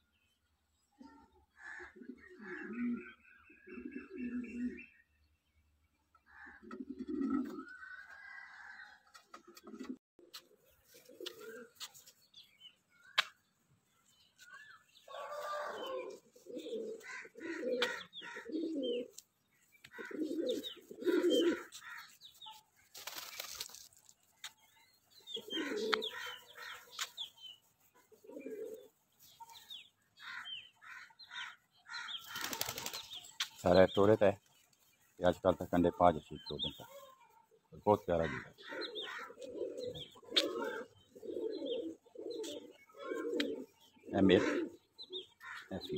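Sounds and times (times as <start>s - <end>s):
birds chirping: 0.0s - 45.9s
pigeons cooing: 1.0s - 5.0s, 6.3s - 12.2s, 14.9s - 22.5s, 25.1s - 33.2s, 38.0s - 45.9s
wings fluttering: 19.7s - 24.6s, 32.2s - 33.6s.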